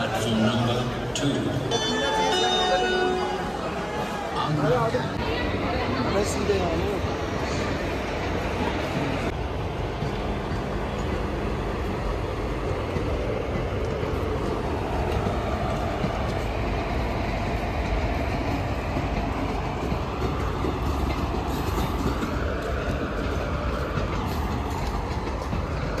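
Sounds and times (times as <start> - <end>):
train wheels rumbling on rails: 0.0 - 26.0.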